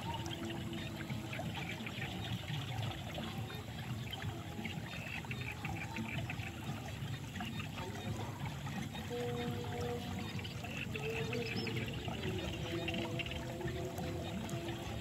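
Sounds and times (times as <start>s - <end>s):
water pouring into a pool: 0.0s - 15.0s.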